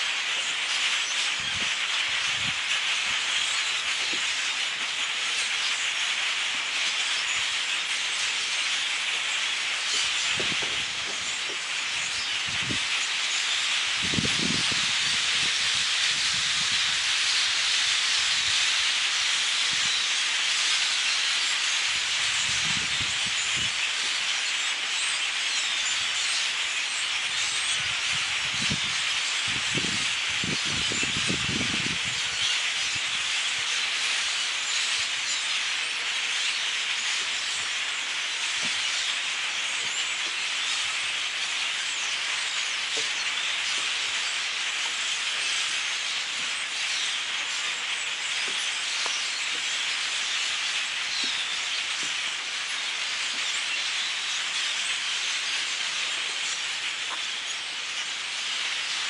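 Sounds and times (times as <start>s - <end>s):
flock of birds chattering: 0.0s - 59.0s.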